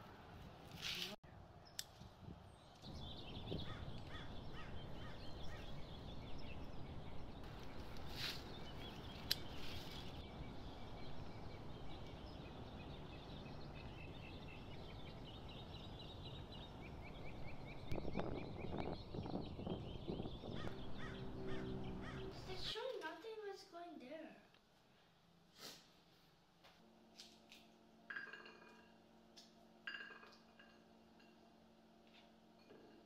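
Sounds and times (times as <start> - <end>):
small birds chirping: 1.6 - 22.9
scissors snipping a stem: 9.1 - 9.7
steady low rumble: 16.4 - 22.6.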